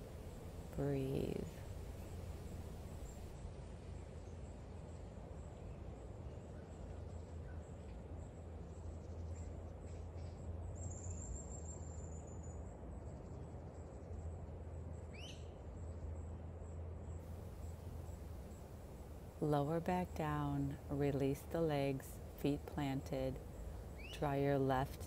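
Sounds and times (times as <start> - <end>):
insects chirping: 0.0 - 3.3, 17.3 - 22.3.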